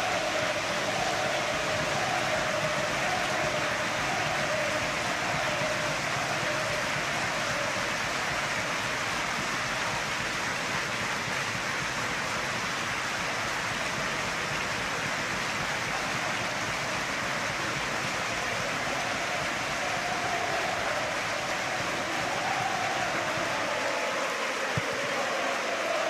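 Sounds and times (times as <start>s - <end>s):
stadium crowd applauding: 0.0s - 26.0s.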